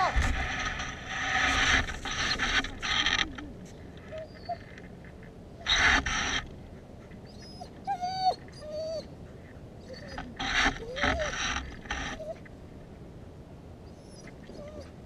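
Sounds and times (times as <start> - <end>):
dog whining: 3.2 - 4.7, 7.2 - 9.1, 9.8 - 12.4, 13.9 - 15.0
dog yelping: 4.1 - 4.7, 7.3 - 9.1, 9.8 - 12.4, 13.9 - 15.0.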